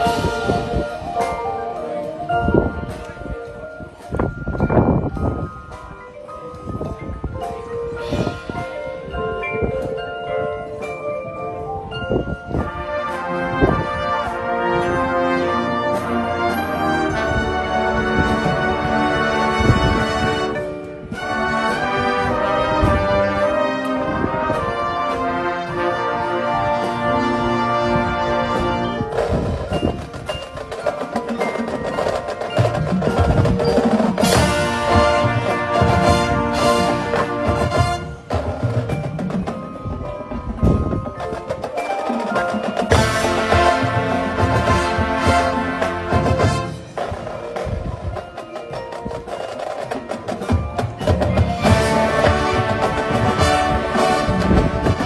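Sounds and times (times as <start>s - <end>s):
brass section playing held chords: 12.6s - 29.0s, 34.2s - 38.4s, 42.9s - 47.0s, 51.6s - 55.0s
clicking percussion: 19.6s - 55.0s.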